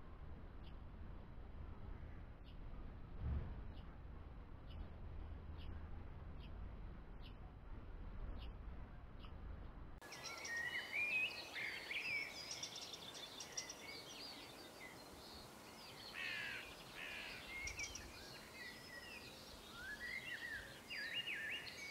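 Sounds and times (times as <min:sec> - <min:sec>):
muffled low rumble: 0:00.0 - 0:10.0
steady outdoor hiss: 0:00.0 - 0:21.9
birds singing and chirping: 0:08.3 - 0:21.9.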